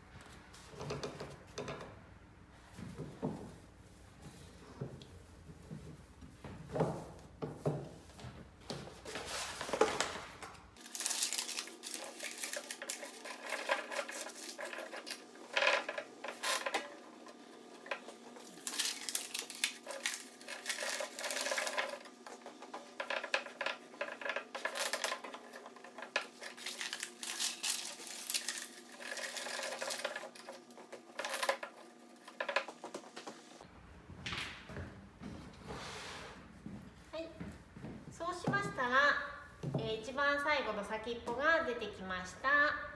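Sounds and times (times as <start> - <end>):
paper rustling: 9.0 - 15.3, 16.2 - 33.4.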